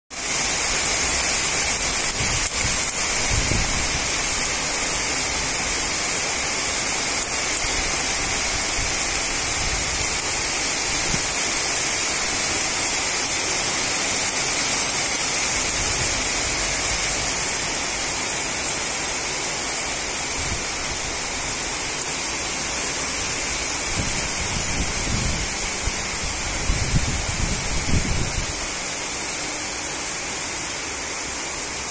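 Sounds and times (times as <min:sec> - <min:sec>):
heavy rain: 0:00.1 - 0:31.9
wind rumble on microphone: 0:01.8 - 0:04.4, 0:07.7 - 0:11.4, 0:23.2 - 0:28.8.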